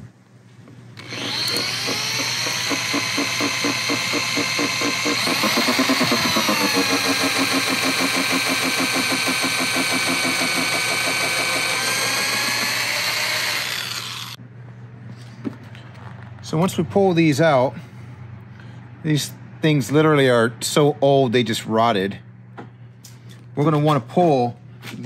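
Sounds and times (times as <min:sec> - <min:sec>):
electric drill whining: 0:01.0 - 0:14.4.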